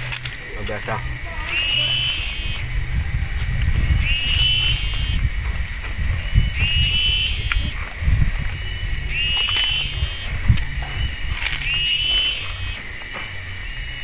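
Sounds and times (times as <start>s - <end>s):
sharp clicks: 0.0s - 2.7s, 3.4s - 5.2s, 8.5s - 13.4s
animal call: 0.0s - 5.3s, 8.6s - 14.0s
high-pitched whine: 0.0s - 14.0s
low rumble: 0.0s - 14.0s.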